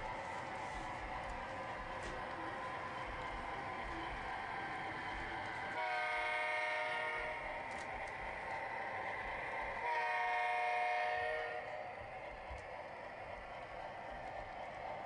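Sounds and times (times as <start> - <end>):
model train running on track: 0.0 - 15.0
model train horn: 5.8 - 7.5, 9.8 - 11.7.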